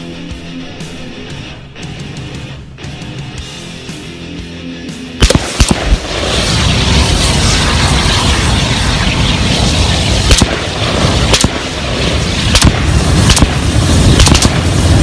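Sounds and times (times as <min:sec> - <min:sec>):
sharp pops: 0:05.2 - 0:06.1, 0:10.2 - 0:10.7, 0:11.3 - 0:11.7, 0:12.5 - 0:13.6, 0:14.2 - 0:14.7
fire burning with rushing noise: 0:05.2 - 0:15.0.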